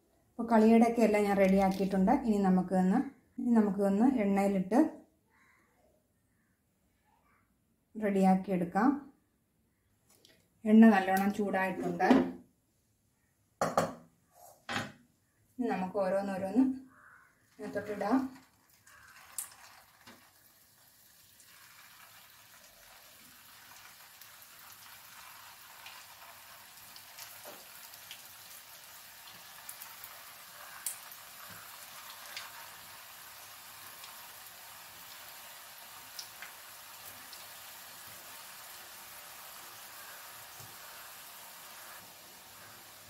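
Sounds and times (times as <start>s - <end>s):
hot oil sizzling: 17.5s - 43.0s.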